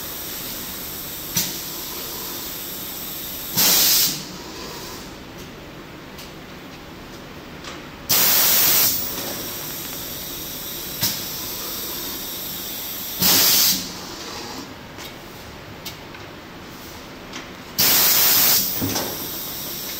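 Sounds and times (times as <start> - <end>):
compressed-air hiss bursts: 2.4 - 4.3, 8.1 - 14.0, 17.8 - 19.9.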